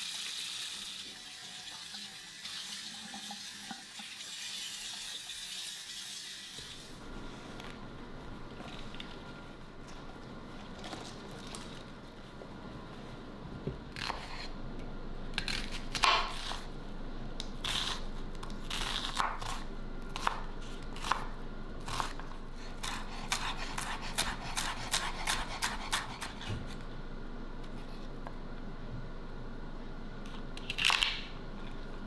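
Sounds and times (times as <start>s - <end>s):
knife cutting vegetables: 13.9s - 14.6s, 15.4s - 16.7s, 17.6s - 26.8s.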